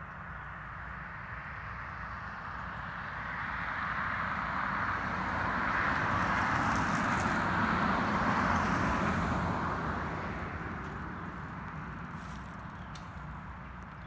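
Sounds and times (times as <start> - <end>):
vehicle passing by: 3.4 - 13.4.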